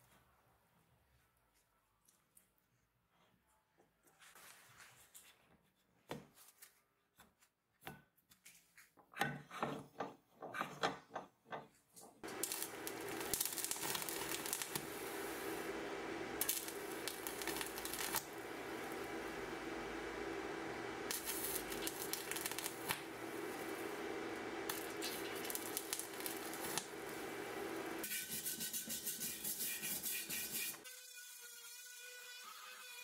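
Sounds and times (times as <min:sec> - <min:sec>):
arc welding crackle and hiss: 0:12.2 - 0:28.2, 0:29.4 - 0:30.8.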